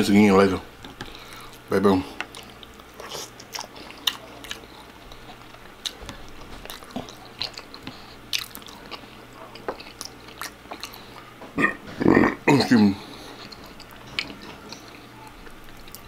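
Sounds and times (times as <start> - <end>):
person chewing crunchy food: 0.8 - 16.0.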